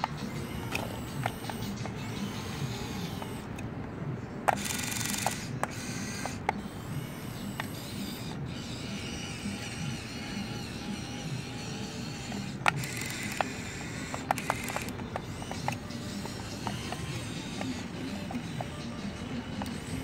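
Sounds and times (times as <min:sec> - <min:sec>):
electric motors whirring: 0:00.0 - 0:20.0
sharp clicks: 0:04.5 - 0:06.6, 0:12.2 - 0:18.8.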